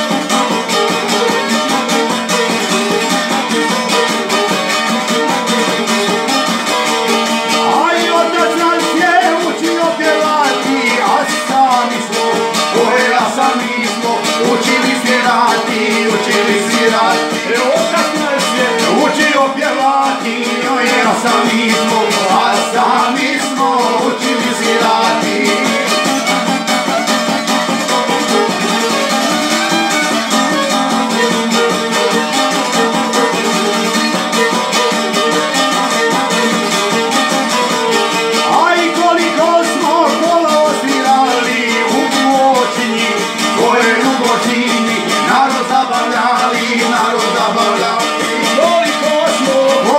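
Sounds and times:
plucked lute: 0.0s - 49.9s
violin: 0.0s - 49.9s
man singing: 7.4s - 26.4s, 38.3s - 49.9s.

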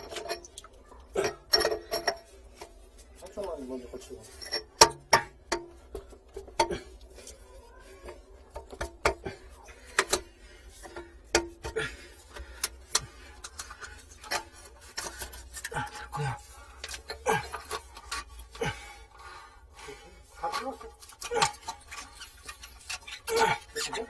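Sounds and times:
metallic clicks and knocks: 4.4s - 6.8s.

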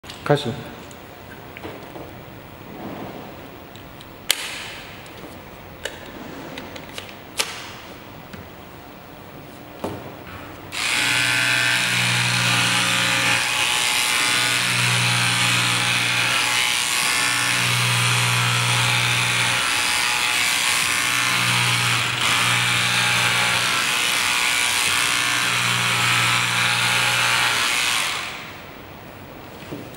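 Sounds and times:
electric scissors buzzing: 10.7s - 28.6s.

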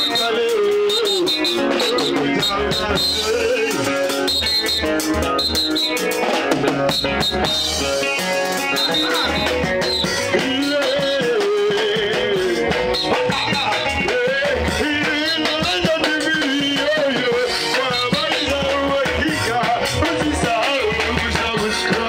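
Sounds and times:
wavering melody line: 0.0s - 11.4s, 12.8s - 14.2s
steady drum beat: 0.0s - 22.0s.

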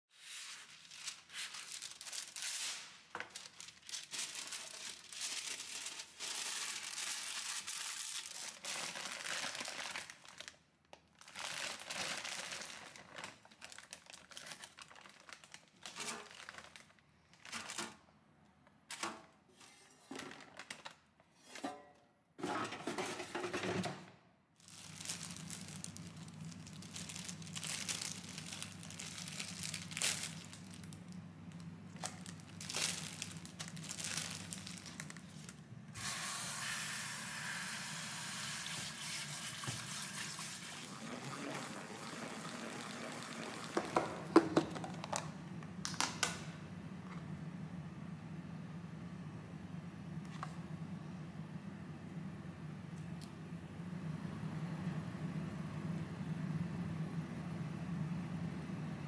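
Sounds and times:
plastic packaging crinkling: 0.2s - 18.0s, 24.6s - 35.6s, 42.2s - 46.4s
steady low hum: 44.2s - 59.0s.

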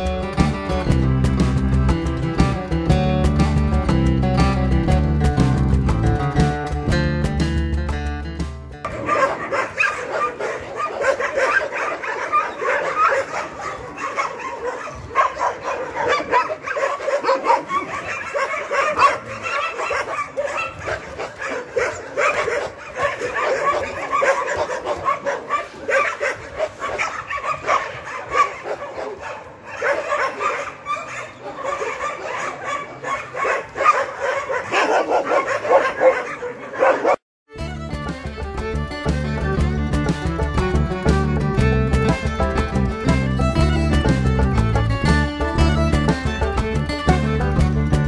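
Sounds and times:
dogs barking and yipping: 8.8s - 37.2s.

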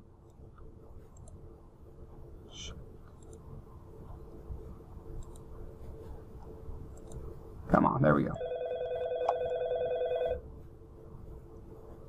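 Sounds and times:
low electrical hum: 0.0s - 12.0s
computer mouse clicks: 0.2s - 1.4s, 3.1s - 3.4s, 5.2s - 5.5s, 6.4s - 7.3s.

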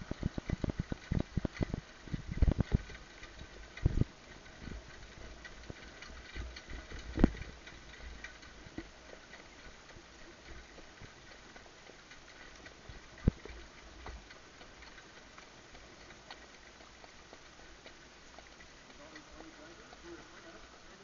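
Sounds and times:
harness and cart knocks: 0.0s - 16.9s
horse hoofbeats on dirt: 0.0s - 21.0s.

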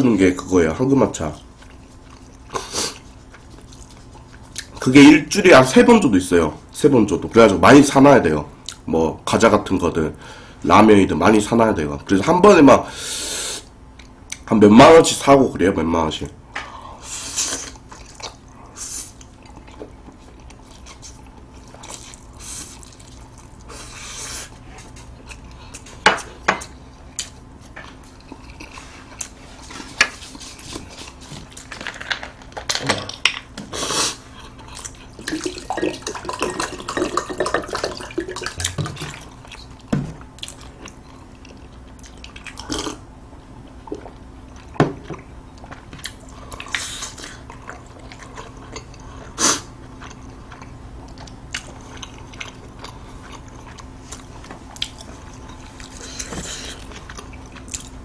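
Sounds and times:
slurping and chewing noodles: 1.4s - 4.8s, 17.1s - 25.9s, 33.8s - 43.0s, 45.6s - 58.0s.

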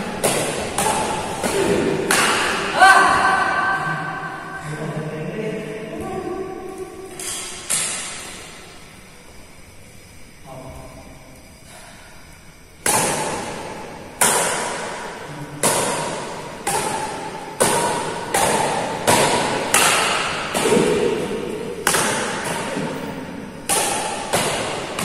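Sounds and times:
racket hitting shuttlecock: 0.0s - 3.8s, 7.1s - 8.5s, 12.8s - 25.0s.

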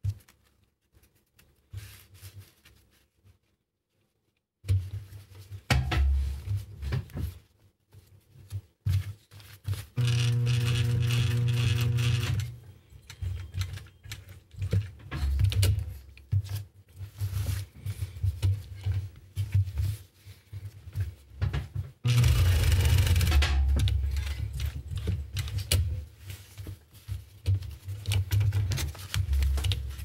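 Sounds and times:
strap handling sounds: 4.6s - 30.0s
sewing machine stitching: 10.0s - 12.7s, 22.0s - 24.7s.

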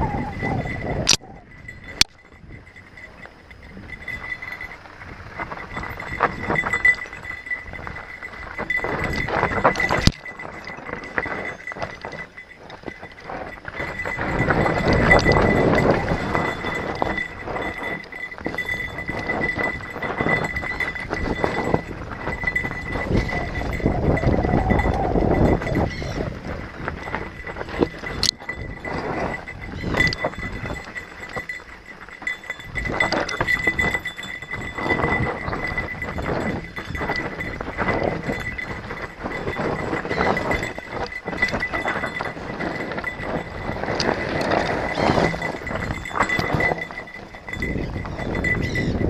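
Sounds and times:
bike rattling and knocking: 0.9s - 49.0s
tyres crunching over dirt and stones: 26.4s - 48.4s.

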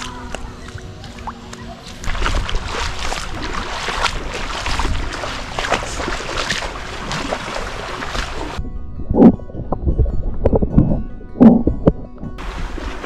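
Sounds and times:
seawater sloshing while wading: 0.0s - 8.6s, 12.4s - 13.0s
wind on microphone: 2.0s - 13.0s.

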